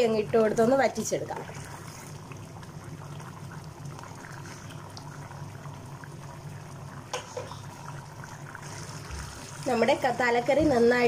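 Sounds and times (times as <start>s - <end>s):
curry bubbling and popping: 0.0s - 11.0s.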